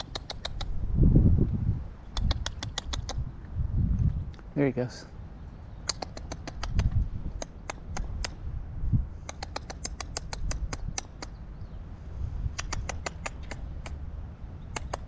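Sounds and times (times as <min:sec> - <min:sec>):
squirrel chattering: 0:00.0 - 0:00.9, 0:02.0 - 0:03.4, 0:05.5 - 0:08.5, 0:09.2 - 0:11.4, 0:12.4 - 0:15.0.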